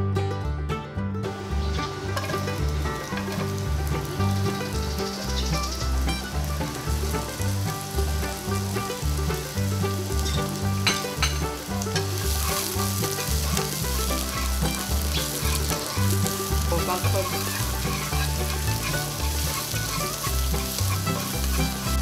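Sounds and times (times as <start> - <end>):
onion sizzling in hot oil: 1.3 - 22.0
chopsticks stirring in pan: 1.4 - 22.0.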